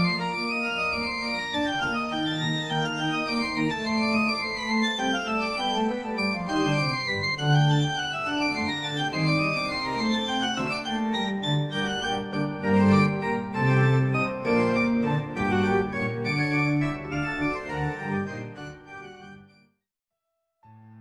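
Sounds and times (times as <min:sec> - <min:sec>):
organ-like keyboard melody: 0:00.0 - 0:19.6.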